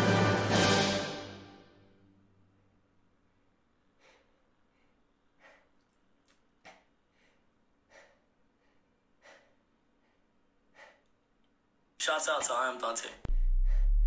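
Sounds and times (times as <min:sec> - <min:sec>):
noisy breaths: 0:03.8 - 0:06.0, 0:06.6 - 0:11.3, 0:13.3 - 0:14.0.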